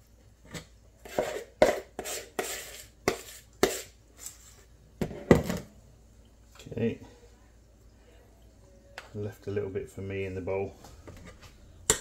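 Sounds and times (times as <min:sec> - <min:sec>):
spoon scraping a bowl: 0:00.5 - 0:04.4.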